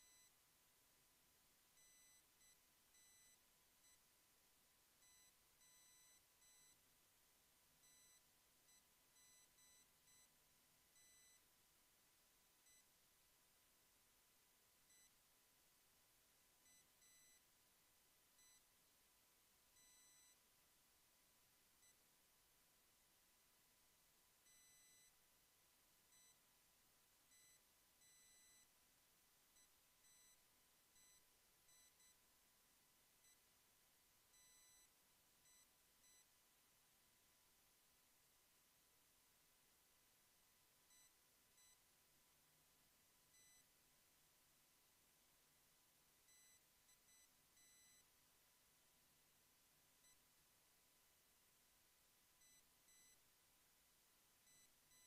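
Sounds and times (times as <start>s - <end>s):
faint high-pitched electronic beeps: 0.0s - 0.4s, 1.8s - 4.1s, 5.0s - 6.8s, 7.8s - 11.5s, 12.6s - 12.9s, 14.9s - 15.2s, 16.6s - 17.5s, 18.4s - 18.7s, 19.8s - 20.4s, 21.8s - 22.0s, 24.4s - 25.2s, 26.1s - 26.4s, 27.3s - 28.7s, 29.6s - 32.2s, 33.2s - 33.5s, 34.3s - 36.3s, 40.9s - 41.8s, 43.3s - 43.7s, 46.3s - 48.1s, 50.0s - 50.2s, 52.4s - 53.2s, 54.4s - 55.0s.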